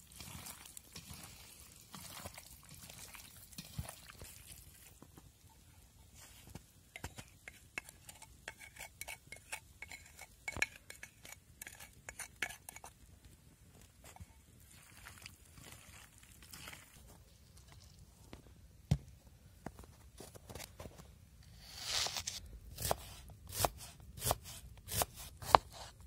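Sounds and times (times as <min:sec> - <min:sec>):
spoon scraping clay pot: 0:00.0 - 0:03.9, 0:06.2 - 0:13.0, 0:13.9 - 0:17.0
hands squishing fish pieces: 0:00.0 - 0:05.0.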